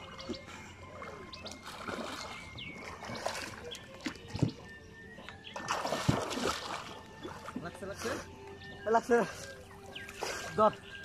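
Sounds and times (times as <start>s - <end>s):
water sloshing from swimmer: 0.0s - 11.0s
sharp splash: 1.4s - 4.5s, 5.6s - 7.6s.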